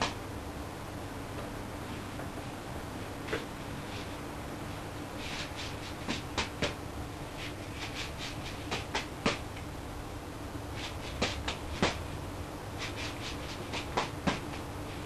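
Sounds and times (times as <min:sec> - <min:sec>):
juggling balls slapping into hands: 0:08.7 - 0:09.6, 0:11.1 - 0:12.0, 0:13.7 - 0:14.6.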